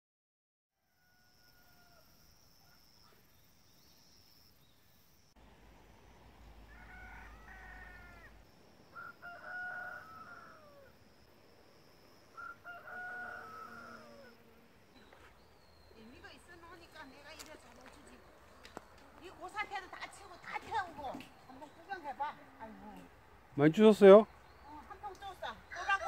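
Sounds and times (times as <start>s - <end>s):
roosters crowing: 0.8s - 2.3s, 6.3s - 11.2s, 12.2s - 14.7s.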